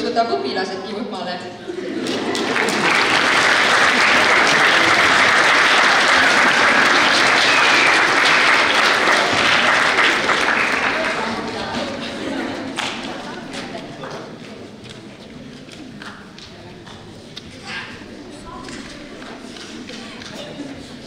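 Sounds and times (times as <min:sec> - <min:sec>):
audience clapping: 0:01.9 - 0:15.0.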